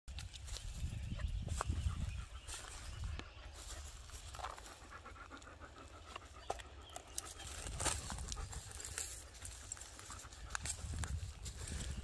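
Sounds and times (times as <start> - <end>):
crackles in dry leaves: 2.5 - 12.0
dog panting: 3.7 - 7.5.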